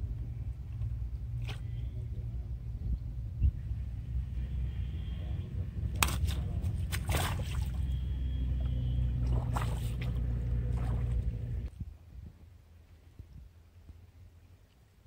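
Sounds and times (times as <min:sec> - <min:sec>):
steady low rumble: 0:00.0 - 0:14.6
water splashing and dripping: 0:05.9 - 0:11.7.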